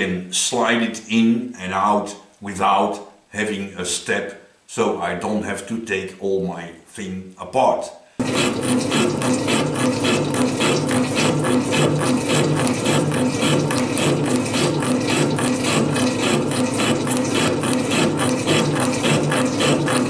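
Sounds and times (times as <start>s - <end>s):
metal shaper clattering: 8.2s - 20.0s.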